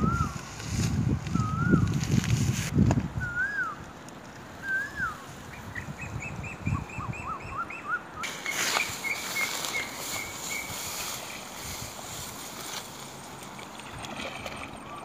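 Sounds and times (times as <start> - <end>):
bird whistled notes: 1.4 - 1.9, 3.2 - 3.8, 4.6 - 10.8
birds chirping: 3.3 - 13.9
steady hiss: 8.2 - 13.4.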